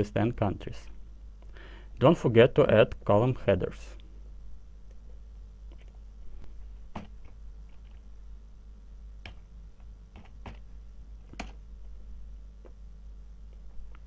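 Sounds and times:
faint low hum: 0.0s - 14.0s
keyboard and mouse clicks: 10.1s - 10.6s, 11.3s - 11.6s.

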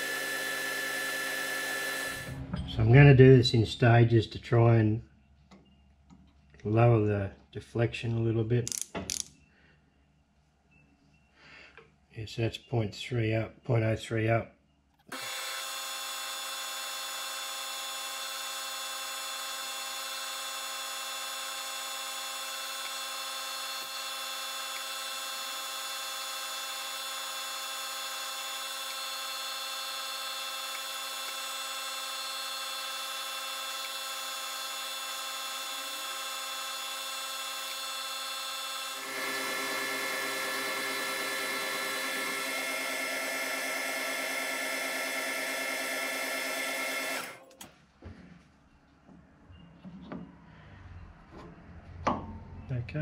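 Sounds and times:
metal lathe whining: 0.0s - 2.4s, 15.1s - 47.5s.

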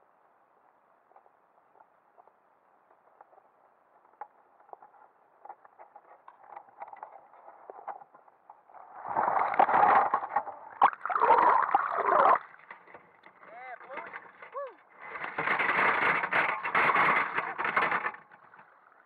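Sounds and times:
water rushing and splashing: 9.0s - 12.6s.

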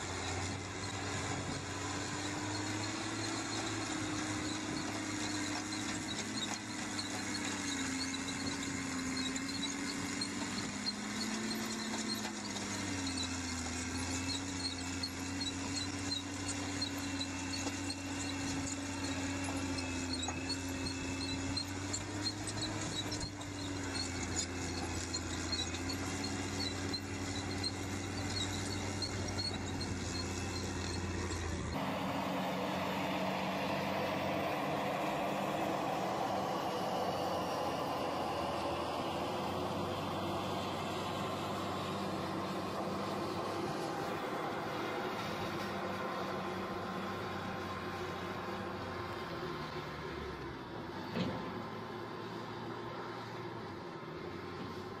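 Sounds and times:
diesel engine under load: 0.0s - 55.0s
chain elevator ticking: 2.3s - 31.7s.

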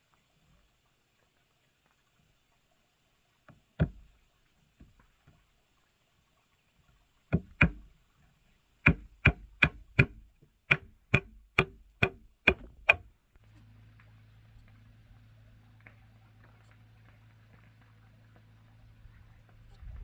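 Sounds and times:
faint steady hum: 0.0s - 20.0s
tool striking wood: 3.8s - 4.1s, 7.3s - 7.9s, 8.9s - 13.1s.

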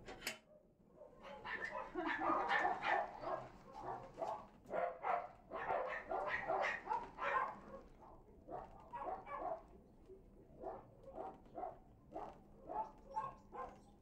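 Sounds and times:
dog barking and yipping: 1.3s - 7.6s, 8.5s - 9.6s, 10.6s - 13.9s.

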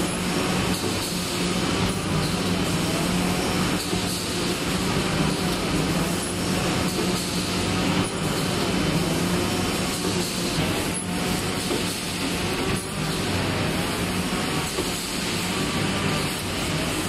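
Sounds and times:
machinery hum: 0.0s - 17.0s.

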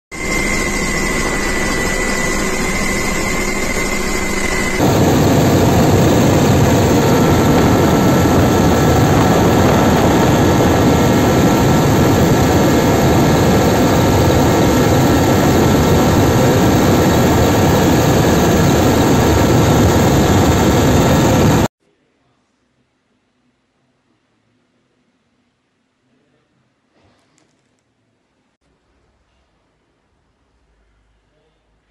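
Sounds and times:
helicopter turbine and rotor: 0.1s - 21.7s.

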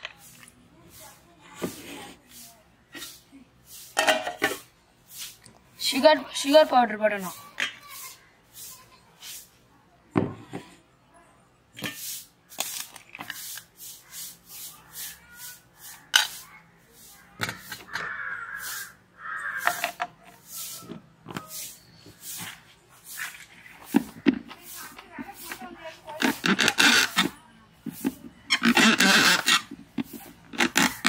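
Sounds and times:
spoon scraping steel bowl: 26.2s - 31.0s.

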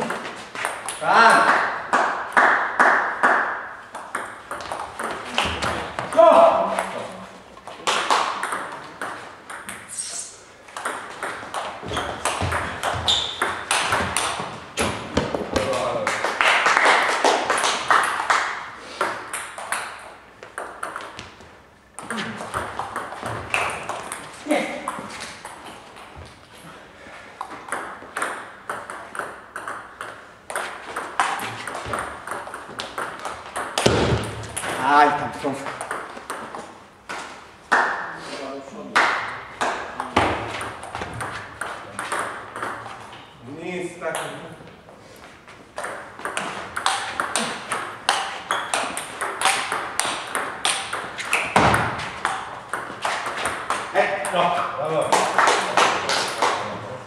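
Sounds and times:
table tennis balls clicking: 0.0s - 7.0s, 7.6s - 10.0s, 10.7s - 15.8s, 17.5s - 26.2s, 27.4s - 35.0s, 35.6s - 38.0s, 39.2s - 43.3s, 45.7s - 54.4s
high squeak: 13.0s - 13.5s
table tennis ball clicking: 45.8s - 53.8s.

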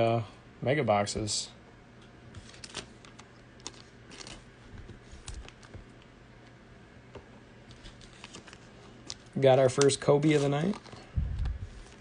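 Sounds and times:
cards and packaging rustling: 2.4s - 6.1s, 7.7s - 12.0s.

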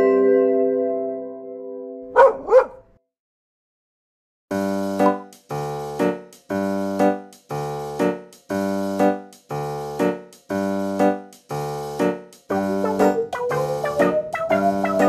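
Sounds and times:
higher keyboard melody: 0.0s - 2.7s, 4.5s - 15.0s
keyboard playing chords: 4.5s - 15.0s.

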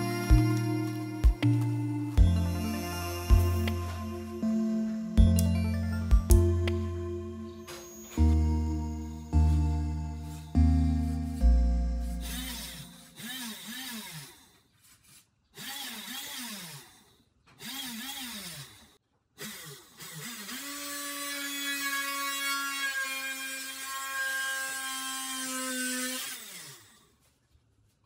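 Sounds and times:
small electric motor whining: 0.0s - 14.6s, 15.6s - 27.0s
drill bit drilling into wood: 12.2s - 14.5s, 15.6s - 27.0s.

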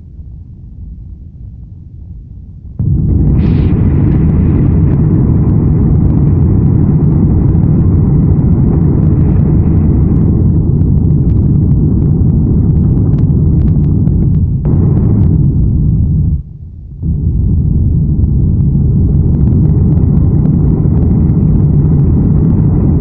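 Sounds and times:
airplane cabin engine rumble: 0.0s - 23.0s.

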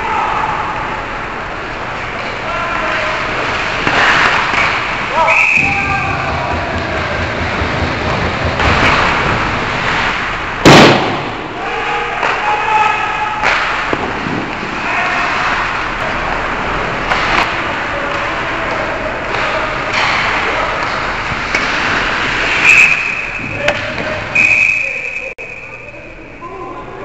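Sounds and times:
hockey sticks and puck knocking: 3.7s - 10.3s, 13.4s - 14.8s, 15.4s - 24.3s
players shouting: 5.0s - 9.1s, 11.2s - 14.0s, 14.7s - 25.4s
referee's whistle: 5.2s - 5.8s, 22.6s - 23.6s, 24.3s - 26.1s.

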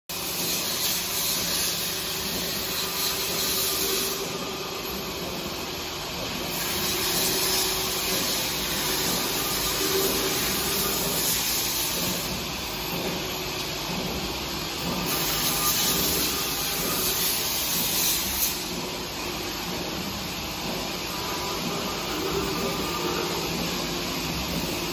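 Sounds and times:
machine hiss: 0.1s - 4.7s, 6.5s - 12.4s, 14.8s - 23.6s
production line machine hum: 0.1s - 24.9s.

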